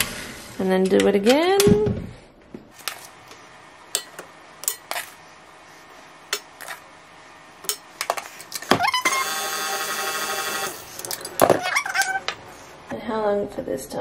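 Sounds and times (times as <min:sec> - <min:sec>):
stand mixer motor whine: 0:09.0 - 0:10.8.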